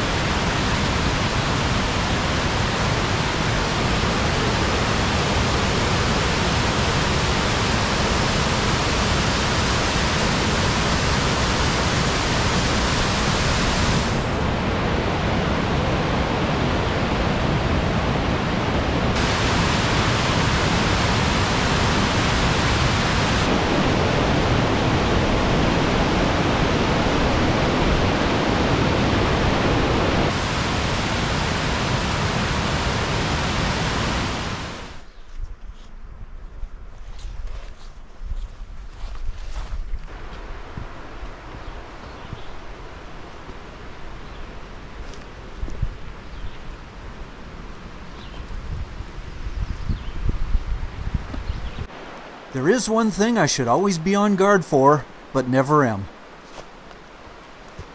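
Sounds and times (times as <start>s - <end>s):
waterfall rushing: 0.0s - 35.0s, 51.9s - 56.0s.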